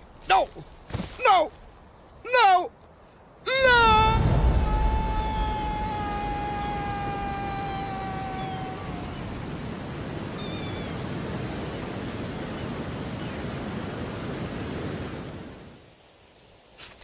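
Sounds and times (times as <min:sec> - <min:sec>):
sea surf: 0:00.0 - 0:16.0
wind: 0:00.0 - 0:17.0.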